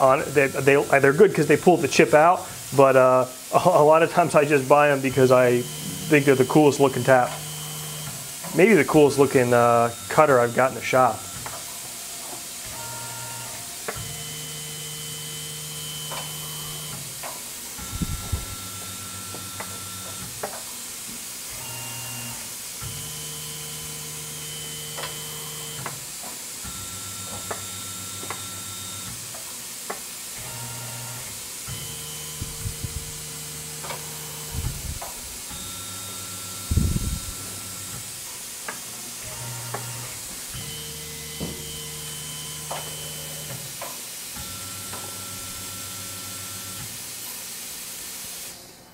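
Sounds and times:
steady hiss: 0.0s - 12.7s
mill spindle motor whine: 0.0s - 48.9s.

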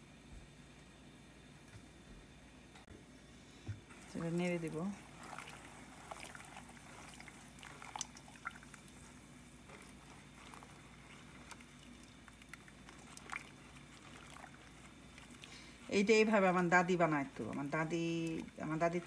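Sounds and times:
syrup bubbling in a saucepan: 3.1s - 19.0s
spatula stirring: 3.8s - 19.0s.

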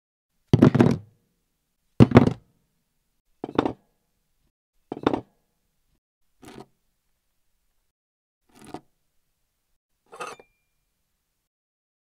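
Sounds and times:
objects knocking on wood: 0.6s - 1.0s, 2.0s - 2.4s, 4.9s - 5.3s.

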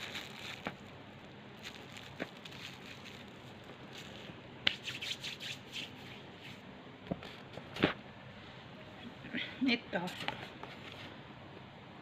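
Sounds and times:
food being handled and chewed: 0.0s - 4.4s.

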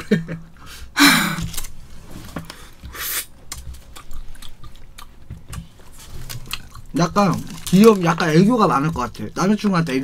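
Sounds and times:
hissy breath burst: 2.6s - 3.3s.

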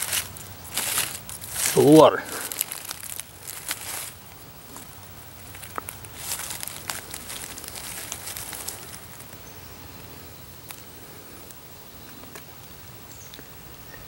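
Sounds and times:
rustling in leaf litter: 0.0s - 11.2s.

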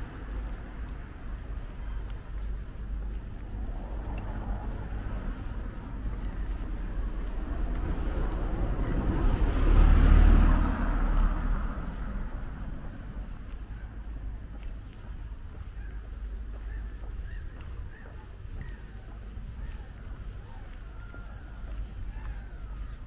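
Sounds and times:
steady low rumble: 0.0s - 23.0s
car passing by: 3.0s - 14.0s.

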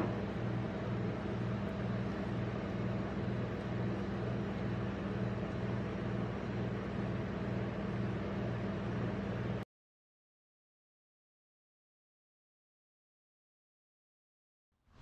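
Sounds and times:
compressor humming and throbbing: 0.0s - 9.6s.

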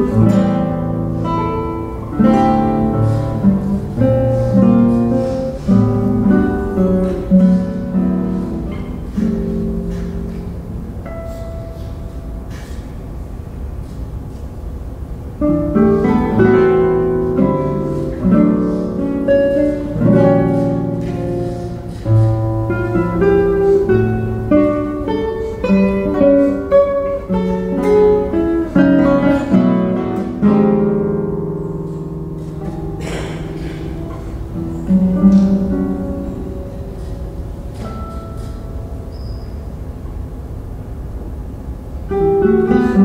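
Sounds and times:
classical guitars playing: 0.0s - 43.0s.

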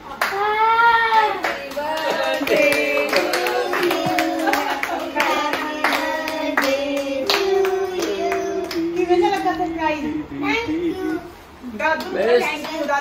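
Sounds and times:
hands clapping in rhythm: 1.1s - 9.4s
person singing melody: 1.3s - 11.3s.

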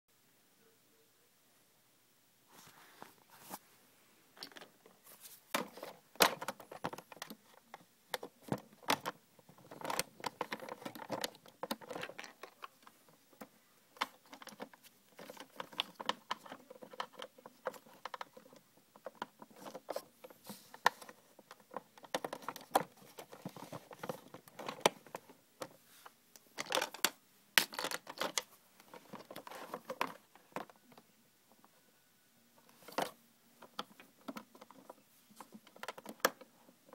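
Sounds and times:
plastic toy pieces clicking: 26.6s - 28.5s.

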